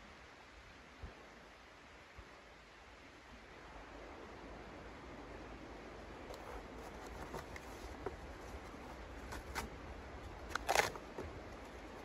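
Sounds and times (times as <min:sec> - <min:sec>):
steady background hiss: 0:00.0 - 0:12.0
kindling clicks and scrapes: 0:06.3 - 0:12.0.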